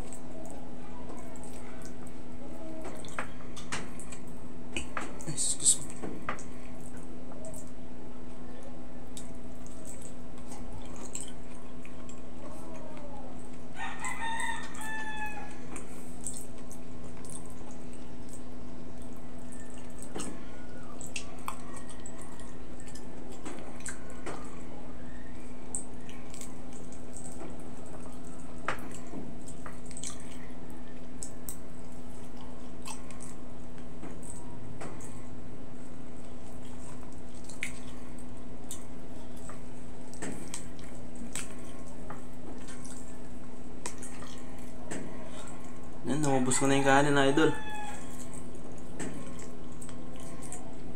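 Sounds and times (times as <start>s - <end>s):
person chewing and eating: 0.0s - 50.9s
steady low hum: 0.0s - 50.9s
rooster crowing: 13.7s - 15.6s, 46.2s - 48.3s.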